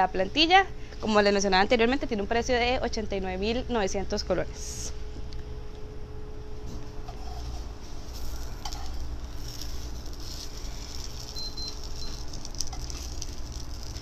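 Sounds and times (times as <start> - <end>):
cakes sizzling in oil: 7.2 - 14.0.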